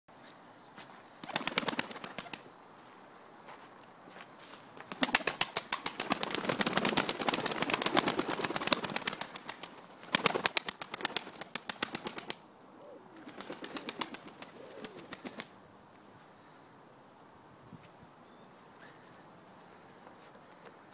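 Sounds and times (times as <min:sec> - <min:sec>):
pigeon wings flapping: 0:01.2 - 0:02.5, 0:04.8 - 0:12.4, 0:13.2 - 0:15.5
pigeon cooing: 0:12.8 - 0:15.5.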